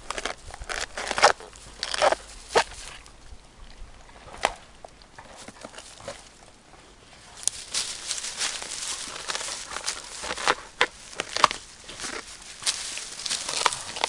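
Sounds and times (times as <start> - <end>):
rustling: 0.0 - 3.1, 5.2 - 14.0
dog tearing dry husks: 7.5 - 14.0.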